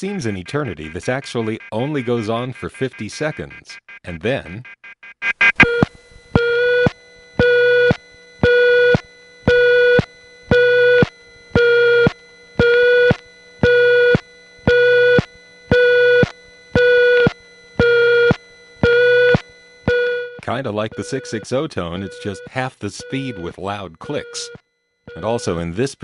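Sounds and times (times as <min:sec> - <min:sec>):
slow on-off telephone tone: 0:05.6 - 0:25.9.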